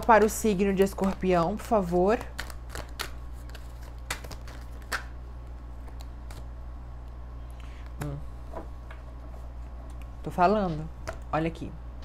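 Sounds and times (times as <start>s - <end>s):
cards being shuffled: 0.0s - 7.2s
steady low hum: 0.0s - 12.0s.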